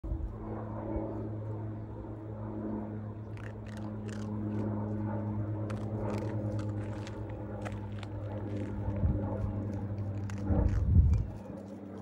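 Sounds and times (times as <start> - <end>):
airplane flying over: 0.0 - 12.0
animal crunching kibble: 3.3 - 5.0, 5.6 - 12.0.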